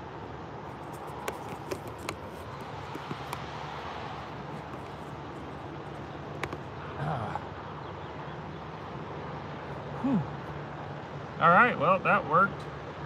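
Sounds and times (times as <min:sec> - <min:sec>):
phone being handled clicks and knocks: 0:00.8 - 0:03.5, 0:04.5 - 0:05.6, 0:06.3 - 0:06.7.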